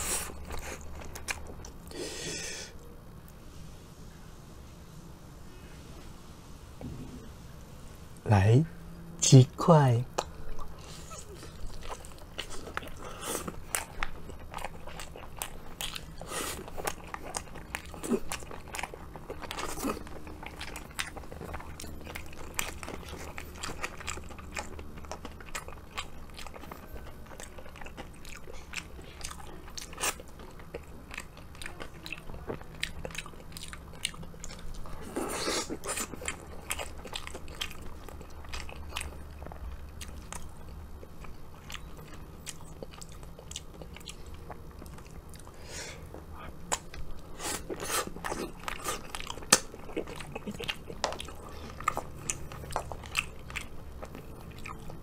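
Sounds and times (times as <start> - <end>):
crunchy bites and chewing: 10.1 - 55.0.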